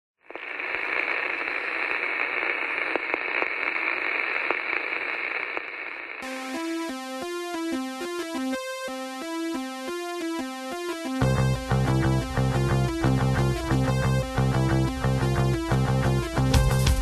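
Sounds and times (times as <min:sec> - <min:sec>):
television static hiss: 0:00.3 - 0:06.2
synthesizer tune: 0:06.2 - 0:17.0.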